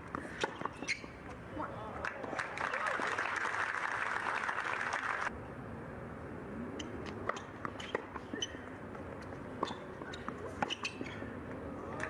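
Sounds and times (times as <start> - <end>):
spectators applauding: 2.2 - 5.3.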